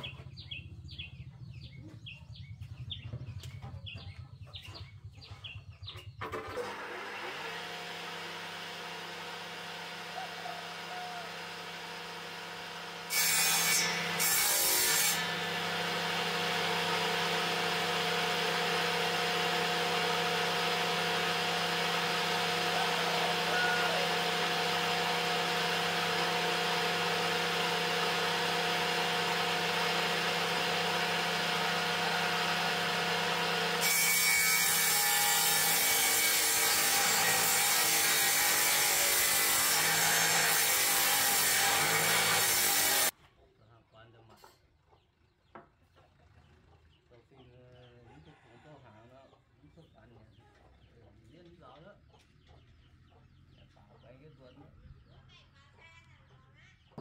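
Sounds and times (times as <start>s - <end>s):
woodworking machine motor humming: 6.2s - 43.1s
cutter cutting wooden plank: 6.2s - 43.2s.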